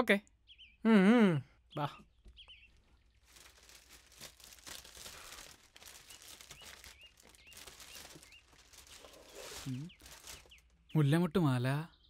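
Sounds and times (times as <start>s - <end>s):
bird chirping: 0.2s - 12.0s
plastic bag crinkling: 3.0s - 10.8s.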